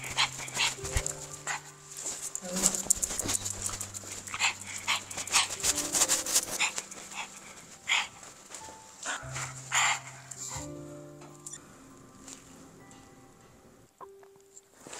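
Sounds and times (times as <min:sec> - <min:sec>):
dog snorting and sniffing: 0:00.0 - 0:10.7.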